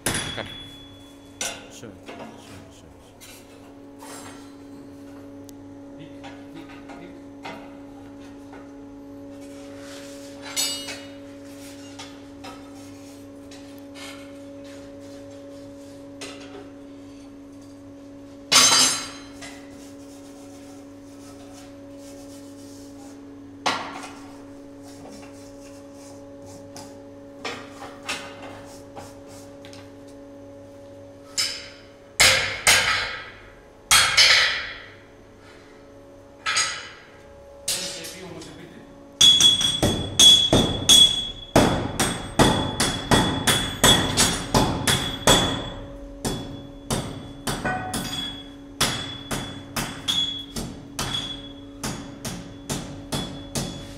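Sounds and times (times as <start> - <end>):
steady machine hum: 0.0 - 53.9
hammer striking iron on steel: 31.4 - 34.9, 39.2 - 53.9.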